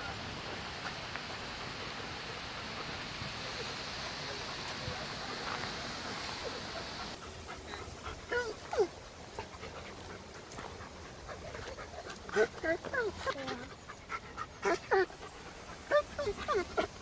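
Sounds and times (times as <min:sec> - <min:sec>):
foxes whining and yipping: 0:12.3 - 0:17.0.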